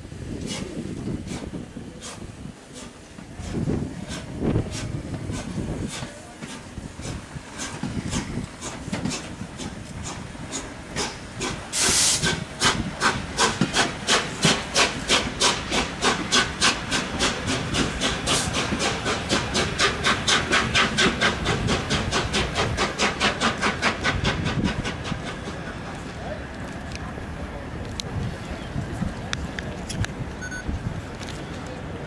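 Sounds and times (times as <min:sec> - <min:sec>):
steam locomotive exhaust beats: 0:00.0 - 0:32.0
burst of steam: 0:00.4 - 0:25.6.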